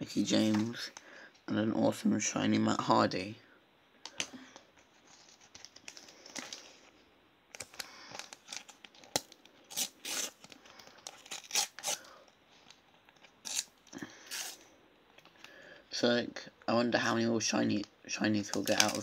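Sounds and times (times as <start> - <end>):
packet wrapper tearing: 7.5 - 12.1, 13.3 - 14.6, 18.4 - 19.0.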